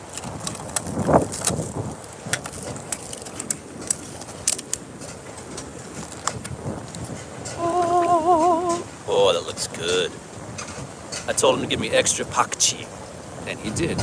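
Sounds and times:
foam container clicks and creaks: 0.0s - 7.7s.

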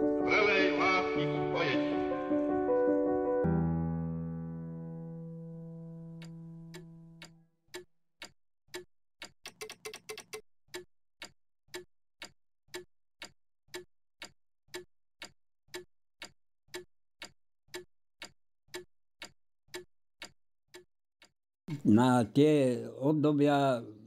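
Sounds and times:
regular ticking: 6.1s - 21.4s.

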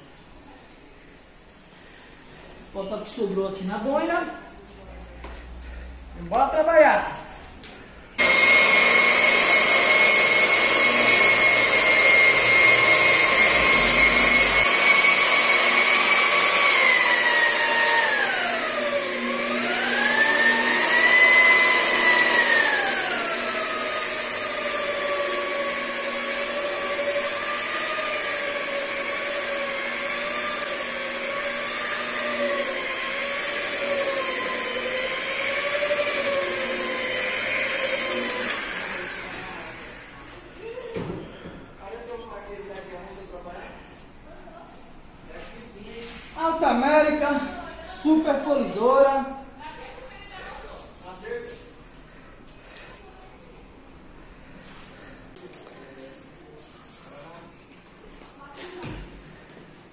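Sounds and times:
rotary polisher whining: 8.2s - 40.4s.

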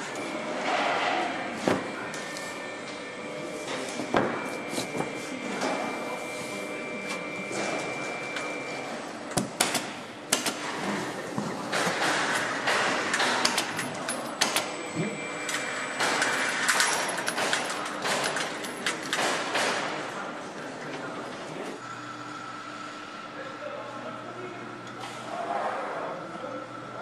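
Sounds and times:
factory mechanical din: 0.0s - 21.2s
clicks and knocks of tools: 15.5s - 19.8s
thin steady whine: 21.8s - 27.0s.

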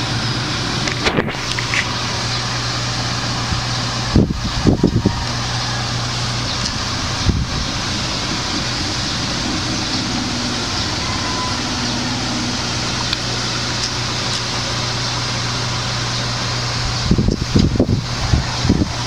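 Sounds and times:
fan rushing hum: 0.0s - 19.0s
low bumps: 5.9s - 14.6s.

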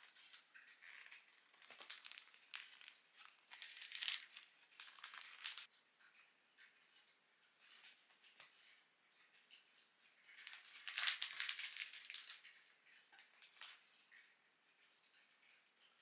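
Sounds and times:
plastic packet crinkling: 0.0s - 5.7s, 10.4s - 12.5s, 13.4s - 13.8s
dry kelp rustling: 1.5s - 5.7s, 10.4s - 12.4s.

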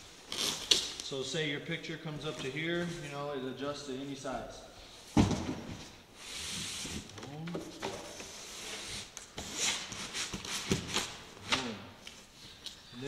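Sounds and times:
cardboard thud: 5.1s - 5.9s
cardboard sliding and scraping: 5.2s - 7.2s.

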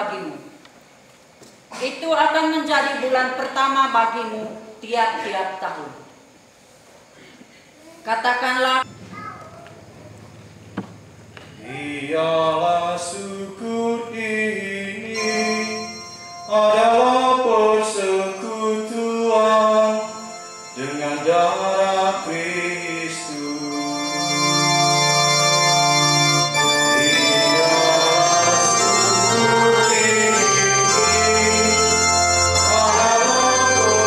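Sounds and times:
liturgical singing: 11.6s - 34.0s
electronic organ: 14.0s - 34.0s.

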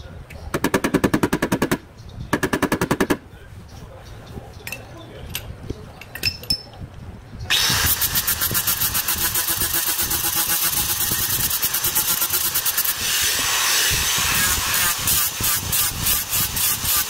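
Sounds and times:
handheld grinder on sheet metal: 7.5s - 17.0s.

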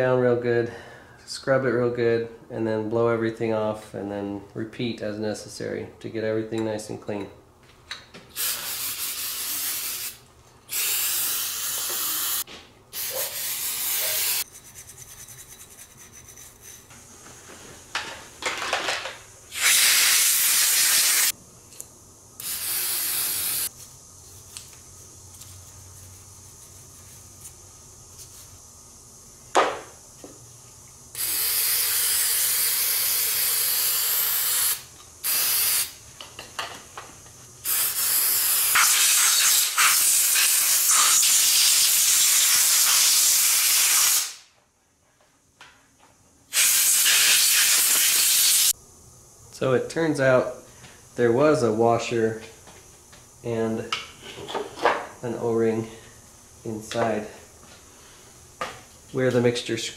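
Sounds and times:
aerosol spray hissing: 8.4s - 12.4s, 13.0s - 14.5s, 19.5s - 21.4s, 22.4s - 23.9s, 31.2s - 36.0s, 37.6s - 44.4s, 46.5s - 48.8s
brush scrubbing: 14.4s - 16.9s.

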